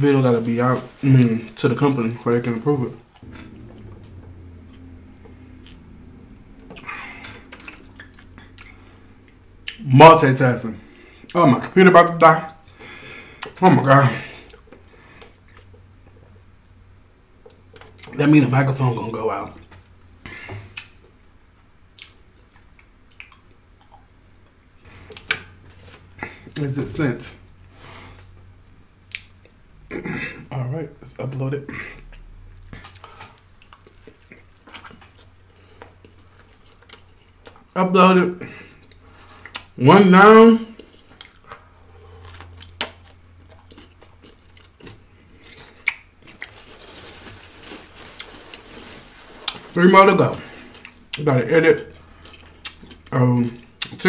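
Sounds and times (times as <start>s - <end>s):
close chewing with mouth clicks: 6.7s - 8.8s, 32.1s - 37.8s, 38.7s - 39.8s, 40.8s - 46.6s, 51.9s - 54.0s.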